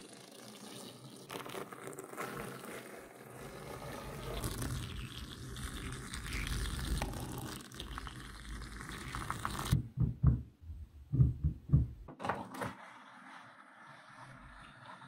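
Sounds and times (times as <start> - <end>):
magnetic balls clicking and scraping: 3.4 - 9.8.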